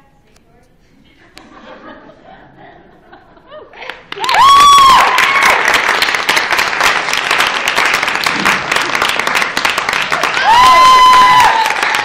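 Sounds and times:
audience applauding: 3.8 - 12.0
high whoop from crowd: 4.2 - 5.7, 10.2 - 12.0.

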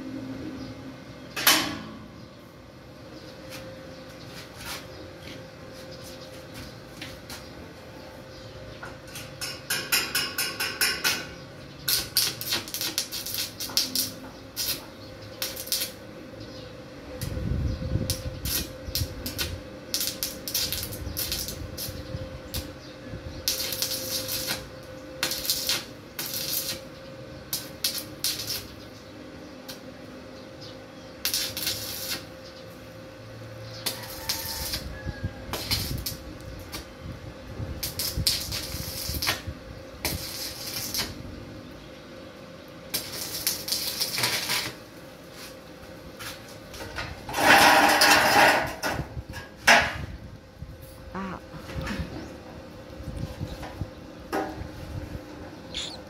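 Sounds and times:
metal grill parts clanking: 1.4 - 2.0, 46.8 - 50.0.

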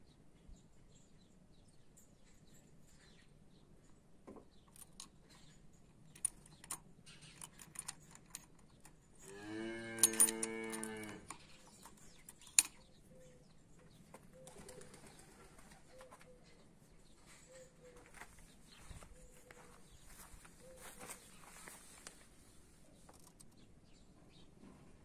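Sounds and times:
key clicking in ignition lock: 6.2 - 9.0, 10.0 - 12.8
cow mooing: 9.2 - 11.3.

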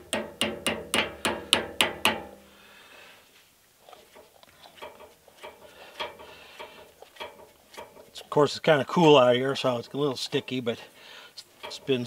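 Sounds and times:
wheel hub ticking metallically: 4.8 - 8.2, 11.5 - 12.0.

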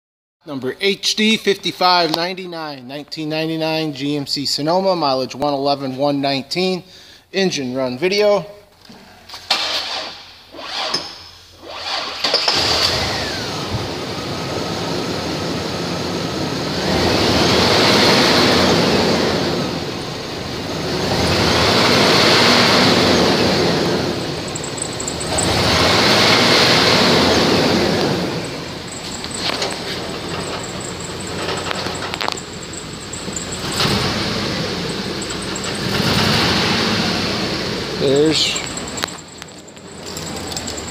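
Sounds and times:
starter cranking engine: 9.5 - 13.6, 24.3 - 37.0, 38.0 - 40.9
engine running and revving: 11.6 - 40.9.

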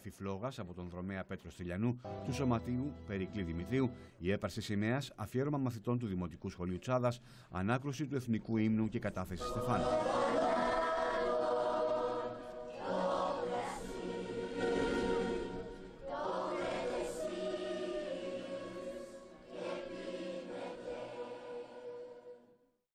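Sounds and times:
children's choir singing: 9.3 - 22.6.

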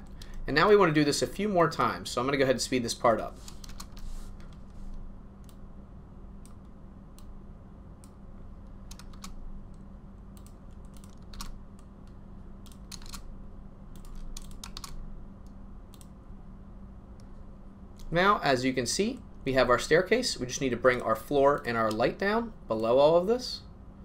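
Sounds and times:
low steady hum: 0.0 - 24.0
computer keyboard clicks: 3.5 - 4.0, 8.9 - 9.4, 10.4 - 11.9, 12.6 - 13.2, 14.0 - 15.0.

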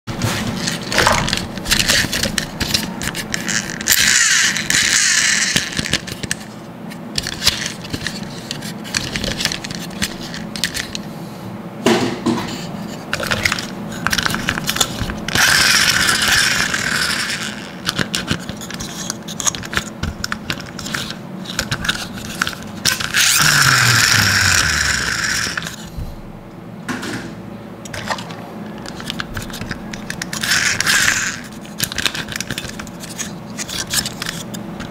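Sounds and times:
plastic toy trucks clattering: 0.6 - 6.4, 28.8 - 34.9
rasping: 20.7 - 25.9.

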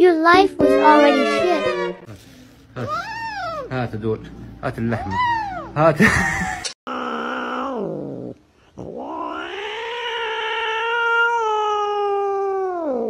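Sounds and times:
cat yowling: 2.8 - 3.7, 5.0 - 5.8, 6.9 - 8.2, 8.8 - 13.0.

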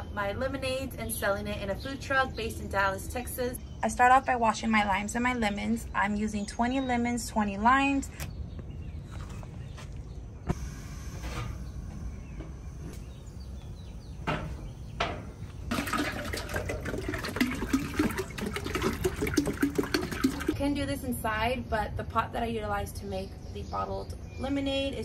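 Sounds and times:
water pouring into metal pot: 15.7 - 20.6.

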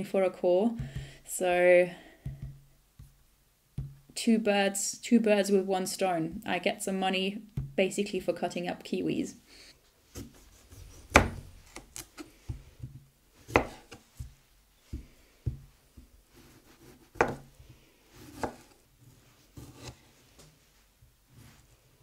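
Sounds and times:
knife knocking on cutting board: 2.2 - 3.1
knife scraping softly: 16.3 - 17.3, 18.1 - 20.4.

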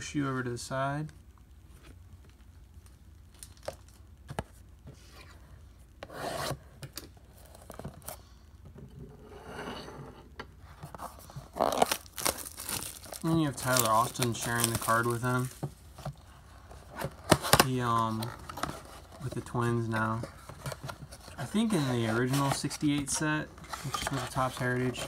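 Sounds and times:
plastic wrap crinkling and tearing: 3.3 - 4.0, 11.4 - 15.6.

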